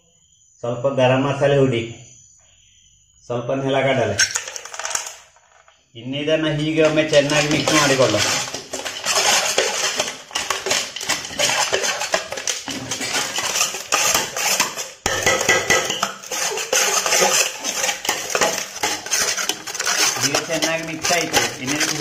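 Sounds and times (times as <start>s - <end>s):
spoon scraping metal bowl: 4.2s - 5.6s, 6.6s - 22.0s.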